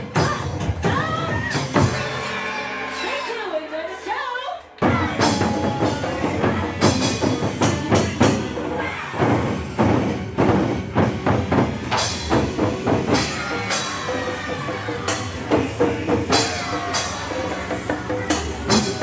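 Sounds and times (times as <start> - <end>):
loud backing music: 0.0 - 4.2, 4.8 - 19.0
taiko drums beaten: 4.8 - 19.0.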